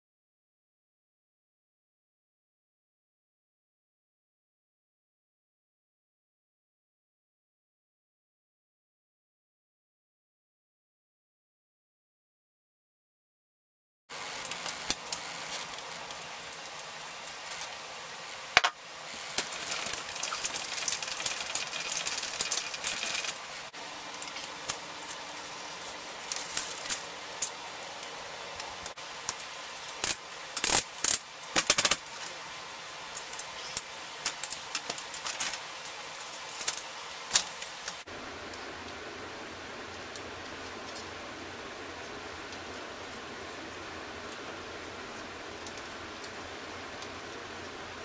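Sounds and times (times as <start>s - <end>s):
steady hiss: 14.1s - 48.0s.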